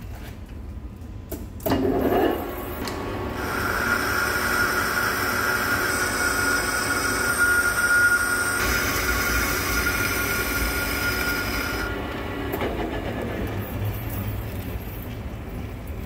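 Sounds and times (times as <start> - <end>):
lathe tool cutting steel: 2.9 - 15.1
high-pitched ringing tone: 5.8 - 10.0.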